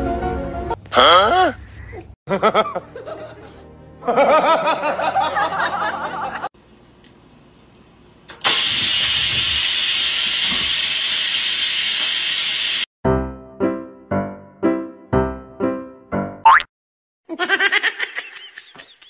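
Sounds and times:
rice cooker venting steam hiss: 8.3s - 12.9s.

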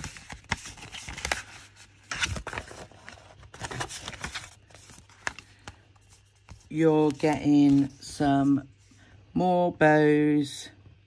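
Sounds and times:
paper and card rustling: 0.0s - 8.7s.

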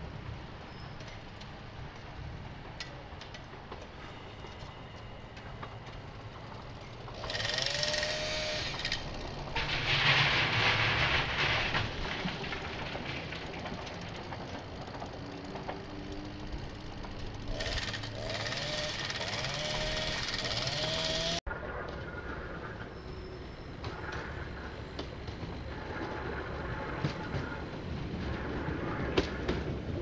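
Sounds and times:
electric train rumbling: 0.0s - 30.0s
high rising screech: 7.2s - 9.0s.

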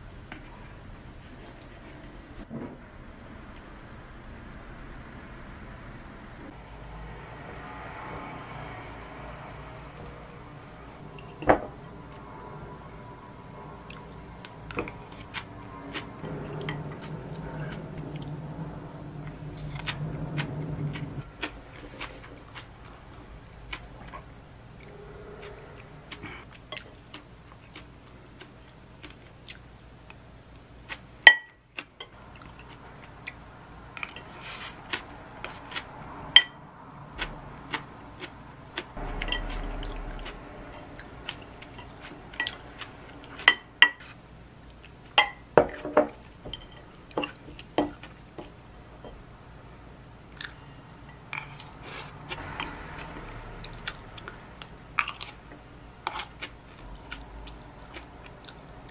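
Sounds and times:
quiet chewing: 19.3s - 30.2s, 50.3s - 58.9s.

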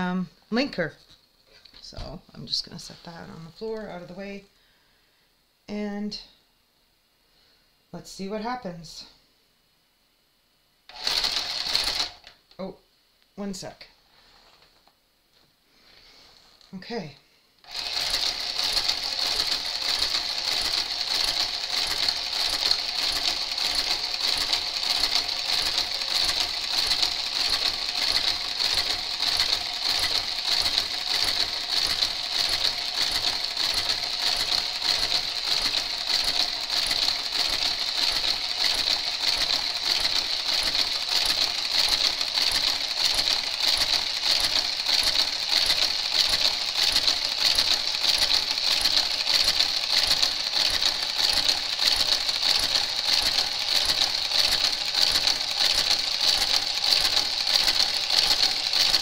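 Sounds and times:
knitting machine carriage motor whirring: 10.9s - 12.4s, 17.6s - 59.0s
ticking of needles: 17.6s - 59.0s.

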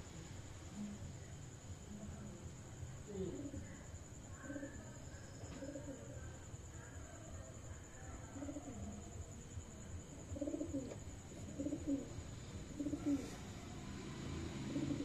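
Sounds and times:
pigeon cooing: 4.4s - 6.2s, 8.3s - 9.0s, 10.2s - 13.6s, 14.3s - 15.0s.

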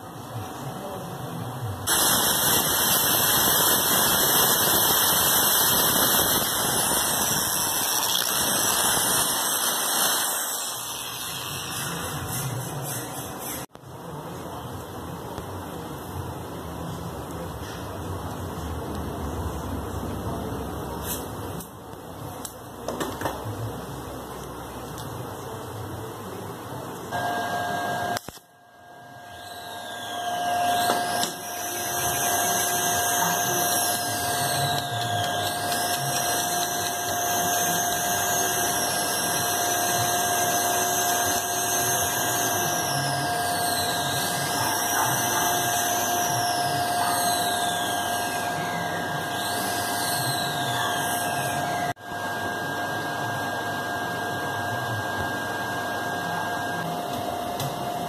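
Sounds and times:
small electric motor whining: 1.9s - 13.7s, 29.1s - 56.9s.

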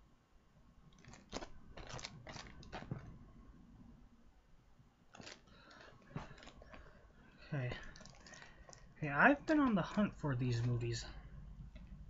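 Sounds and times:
plastic cases clicking and crackling: 0.9s - 3.2s, 5.1s - 7.0s, 7.6s - 10.8s.

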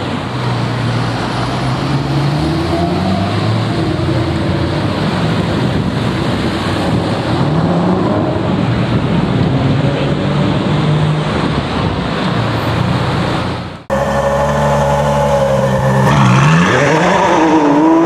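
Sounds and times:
car engines in traffic: 0.0s - 18.0s
street noise: 0.0s - 18.0s
loud engine note: 13.8s - 18.0s.

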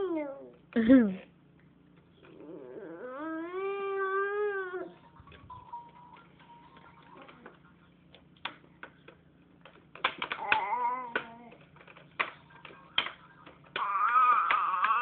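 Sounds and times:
baby's voice: 10.4s - 11.6s.

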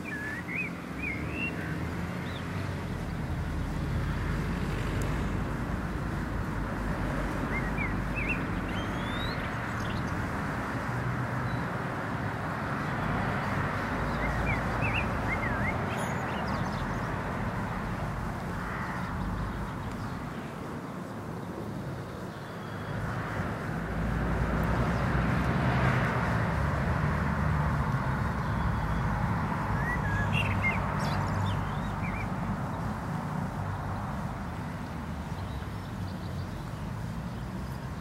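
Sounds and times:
bird chirps: 0.0s - 2.4s, 7.4s - 10.2s, 14.1s - 17.1s, 29.7s - 32.3s
outdoor rumble with hiss: 0.0s - 38.0s.

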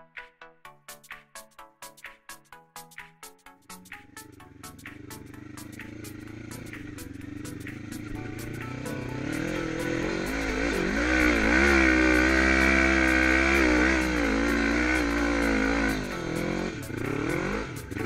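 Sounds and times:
quad engine revving hard: 4.9s - 18.0s.

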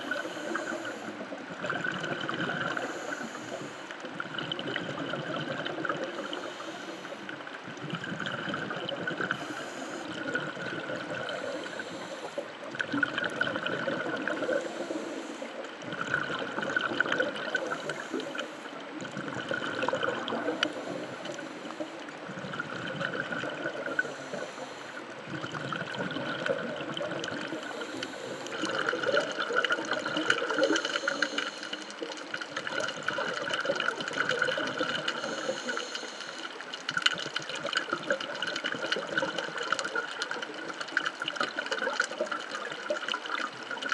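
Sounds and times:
regulator inhalation hiss: 0.0s - 1.2s, 2.7s - 3.9s, 6.2s - 7.4s, 9.3s - 10.2s, 11.2s - 12.5s, 23.9s - 25.0s, 27.5s - 28.9s, 30.4s - 32.1s, 35.1s - 36.6s
exhaled bubbles rumbling: 0.0s - 43.9s.

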